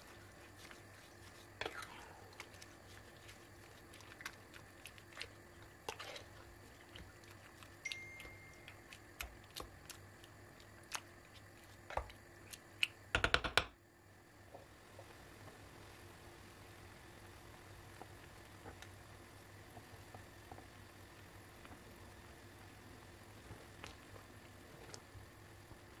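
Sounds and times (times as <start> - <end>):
wooden spoon tapping a pot: 13.2 - 13.7.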